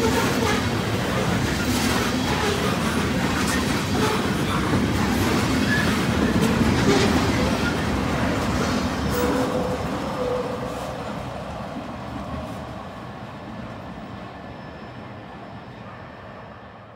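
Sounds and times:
train wheels rumbling on rails: 0.0 - 16.8
wheel squeals: 5.6 - 8.0.

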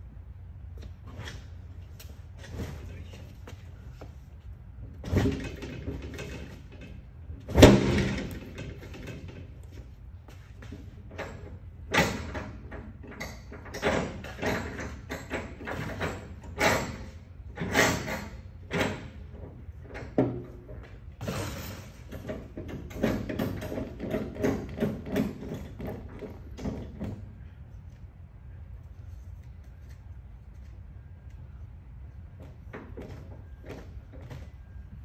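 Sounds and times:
steady low hum: 0.0 - 35.0
metal door clanks and rattles: 5.0 - 9.6, 11.1 - 27.2.

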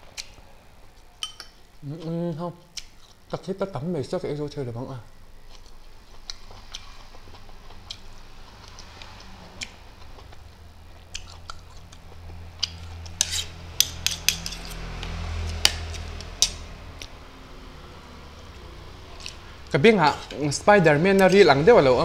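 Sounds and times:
spoons clinking on dishes: 1.2 - 1.6.

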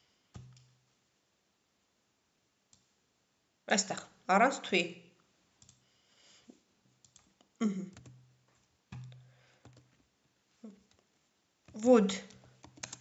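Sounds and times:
computer mouse clicks: 0.4 - 0.7, 5.6 - 5.8, 7.0 - 7.3, 11.7 - 13.0.

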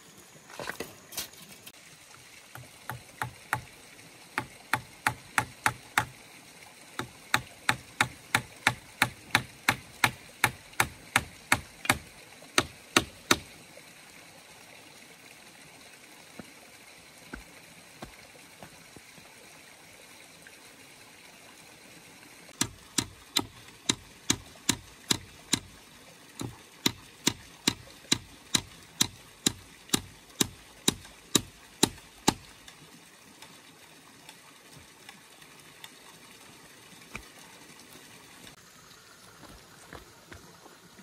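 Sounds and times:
hammer striking wooden post: 2.6 - 3.7, 4.4 - 6.1, 7.0 - 13.5, 22.6 - 25.7, 26.4 - 32.5.

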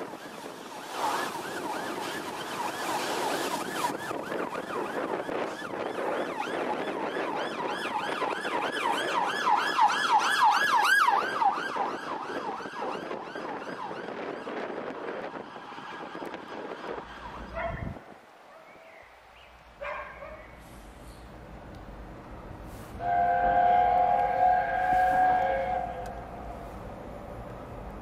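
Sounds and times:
steam locomotive passing: 0.0 - 9.8, 20.6 - 28.0.

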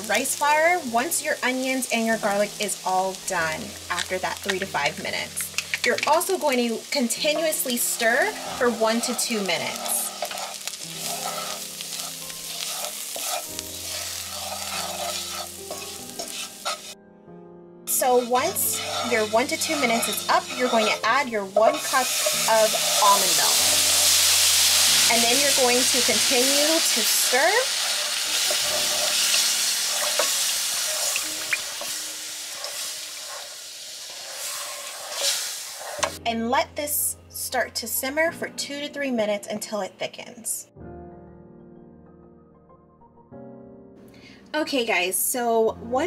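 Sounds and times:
food sizzling in a pan: 0.0 - 17.0, 17.9 - 36.2
wooden spoon scraping a pan: 3.9 - 17.0, 17.9 - 36.2.

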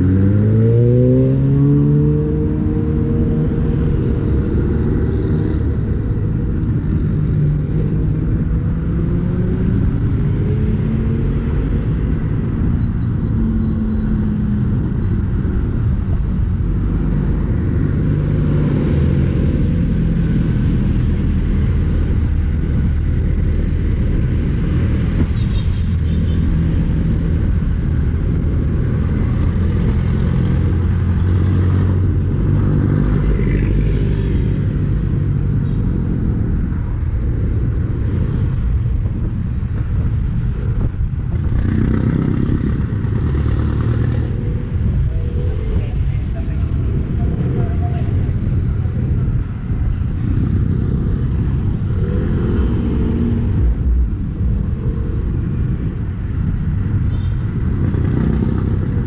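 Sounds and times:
car and motorcycle engines passing: 0.0 - 59.0
steady low traffic rumble: 0.0 - 59.0.

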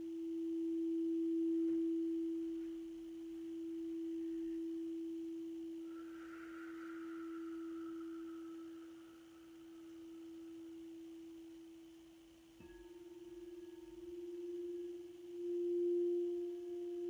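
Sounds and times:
fainter higher bowl tone: 0.0 - 17.0
singing bowl tone: 0.0 - 17.0.

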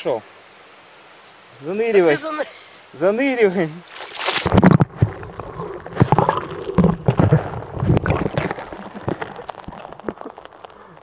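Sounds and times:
underwater gurgling and bubbling: 4.4 - 11.0.

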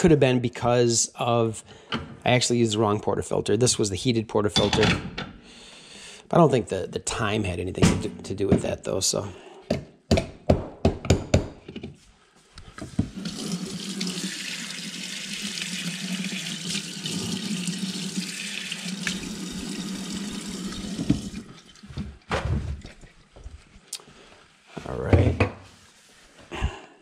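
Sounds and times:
faucet running water: 13.0 - 21.9.

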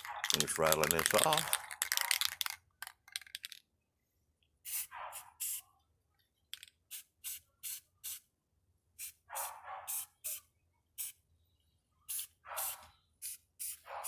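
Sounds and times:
spray paint can hissing: 4.6 - 5.6, 6.9 - 8.2, 9.9 - 10.4, 11.0 - 11.2, 12.1 - 13.9.

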